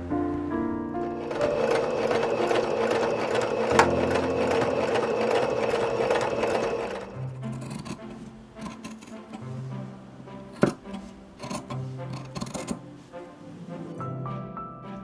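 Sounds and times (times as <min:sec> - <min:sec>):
sewing machine stitching: 0:01.1 - 0:09.4, 0:10.6 - 0:12.8.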